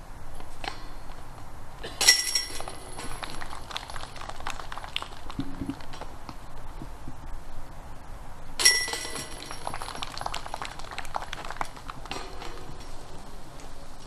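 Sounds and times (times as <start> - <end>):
disc hitting metal chains: 2.0 - 3.3, 8.6 - 10.1
steel chains jingling: 2.0 - 3.3, 8.6 - 10.1.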